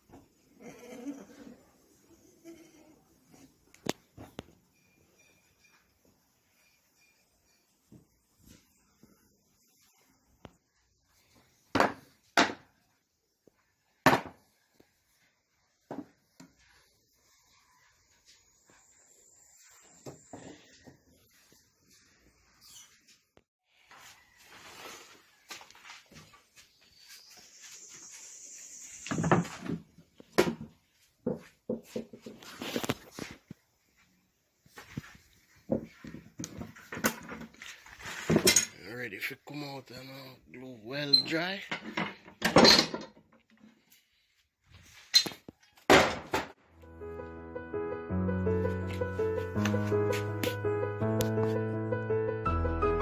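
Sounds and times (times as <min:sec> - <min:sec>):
knocks and clanks in workshop: 0:11.7 - 0:12.8, 0:14.0 - 0:14.8, 0:15.8 - 0:16.6, 0:29.1 - 0:32.5, 0:34.8 - 0:38.8, 0:41.1 - 0:43.6, 0:45.1 - 0:46.6
high hiss: 0:27.4 - 0:29.3.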